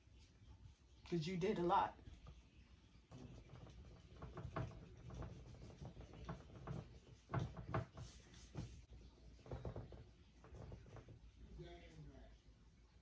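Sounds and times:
paintbrush tapping on canvas: 3.1s - 11.3s.

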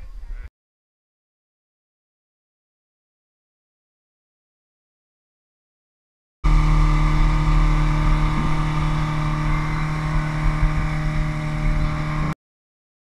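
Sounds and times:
churning wake: 6.4s - 12.4s
outboard motor running: 6.4s - 12.4s.

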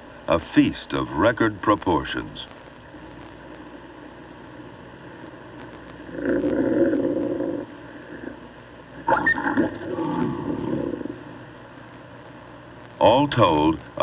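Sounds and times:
coyotes growling and snarling: 6.1s - 8.3s, 9.0s - 11.3s.

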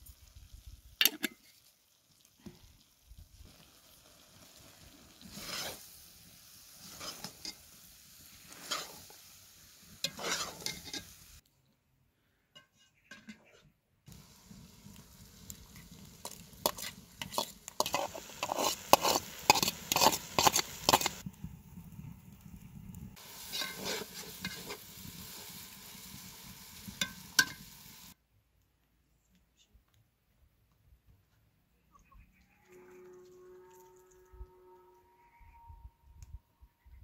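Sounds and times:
firewood crackling and popping: 14.1s - 28.2s.

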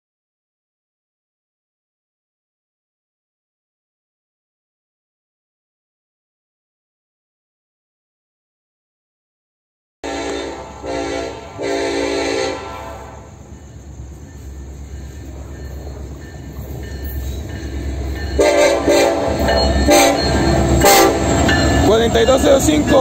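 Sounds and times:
locomotive horn blasts: 10.0s - 13.4s, 18.4s - 21.4s
train rumble: 10.0s - 23.0s.

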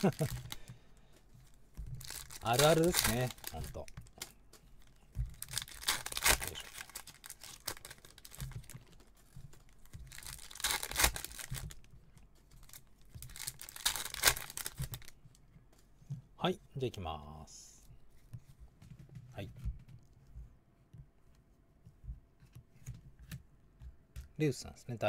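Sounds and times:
foil wrappers tearing and crinkling: 0.0s - 0.6s, 2.0s - 4.4s, 5.3s - 9.0s, 9.8s - 11.8s, 12.6s - 15.1s
cards shuffling: 0.0s - 11.8s.

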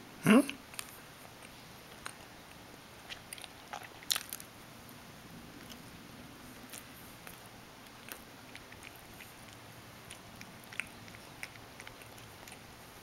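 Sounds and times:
cat chewing and licking: 0.6s - 13.0s.

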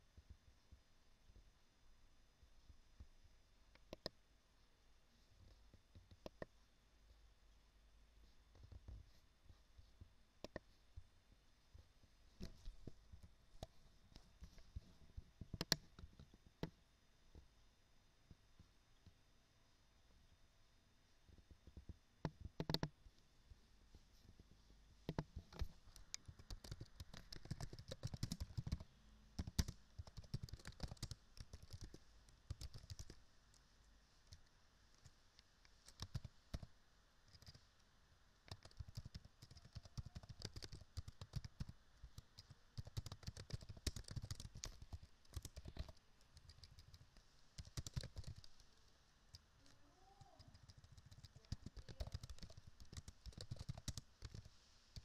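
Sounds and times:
keyboard typing: 15.5s - 16.1s, 22.2s - 22.9s, 25.1s - 33.2s, 35.7s - 36.7s, 37.3s - 37.6s, 38.5s - 48.7s, 50.4s - 55.0s.

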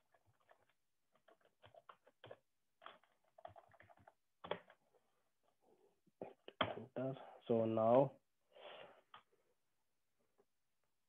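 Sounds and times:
faint computer keyboard typing: 0.0s - 4.8s.

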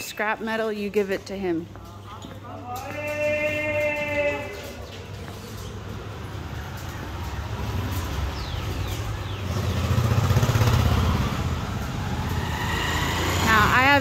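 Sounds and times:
motorbike engine passing: 5.2s - 14.0s.

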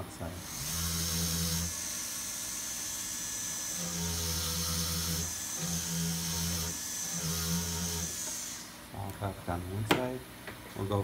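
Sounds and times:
rotary tool buffing whine: 0.4s - 8.8s.

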